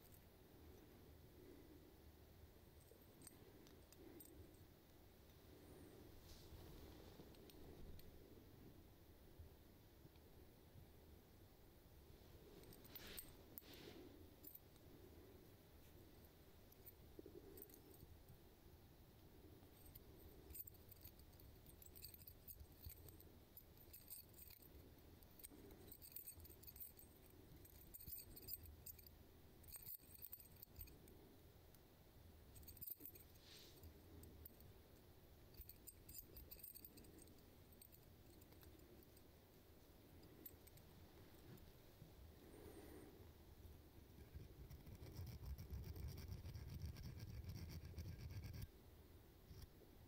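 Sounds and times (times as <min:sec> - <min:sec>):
lure metal parts clinking: 0:19.8 - 0:31.0, 0:32.5 - 0:39.3.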